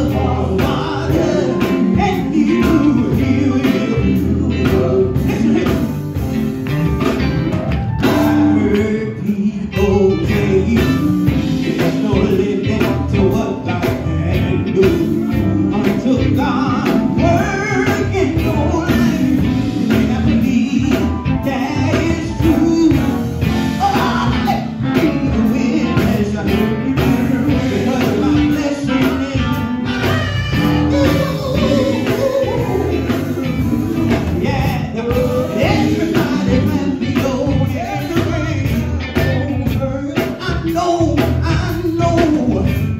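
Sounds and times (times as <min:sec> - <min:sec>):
male singer singing: 0:00.0 - 0:06.2, 0:08.0 - 0:42.9
electric bass: 0:00.0 - 0:42.9
electric guitar: 0:00.0 - 0:42.9
steady beat: 0:14.9 - 0:41.9.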